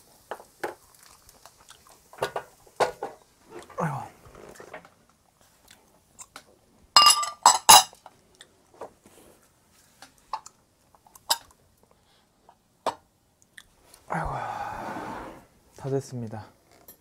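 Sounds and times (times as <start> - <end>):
tableware clinking and knocking: 7.0 - 8.0.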